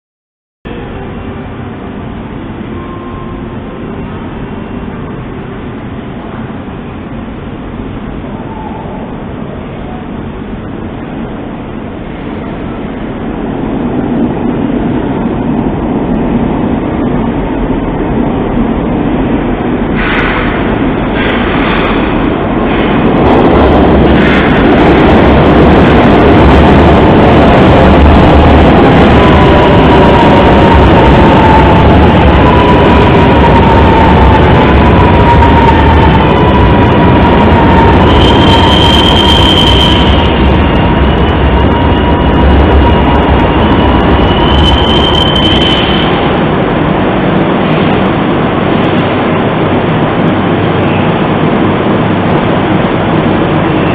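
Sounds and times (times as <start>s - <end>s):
metro train rumble: 0.6s - 53.9s
wheel squeal: 35.0s - 46.3s.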